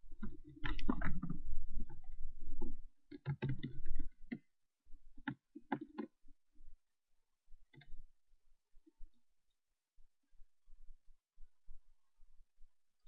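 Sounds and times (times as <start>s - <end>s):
computer mouse clicking: 3.1s - 4.5s, 5.2s - 6.2s.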